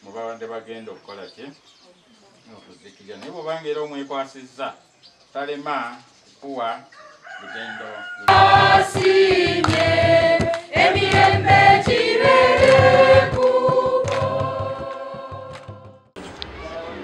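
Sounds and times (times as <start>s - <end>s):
congregation singing a hymn: 8.3s - 16.1s
hand drum beats: 8.3s - 16.1s.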